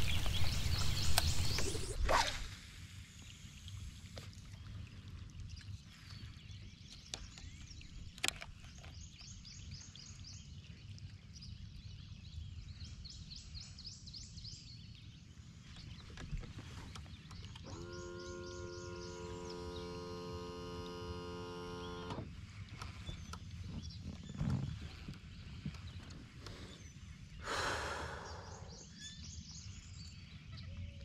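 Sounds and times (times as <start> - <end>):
bird chirping: 15.7 - 22.1, 22.7 - 31.0.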